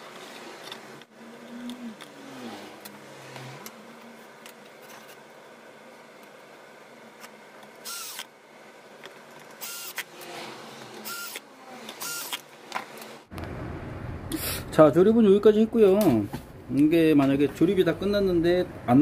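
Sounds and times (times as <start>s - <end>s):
cordless drill driving screws: 7.8s - 8.3s, 9.6s - 12.4s.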